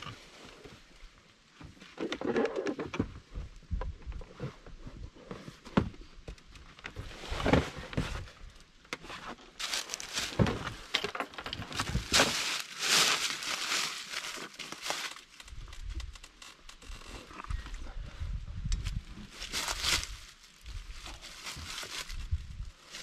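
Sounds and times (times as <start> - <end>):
carcass dragging and scraping: 7.0 - 23.0
dry leaves crunching underfoot: 9.4 - 17.1, 18.8 - 23.0.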